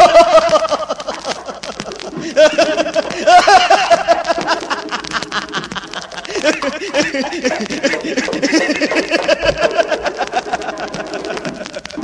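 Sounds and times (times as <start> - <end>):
man laughing heartily: 0.0 - 12.0.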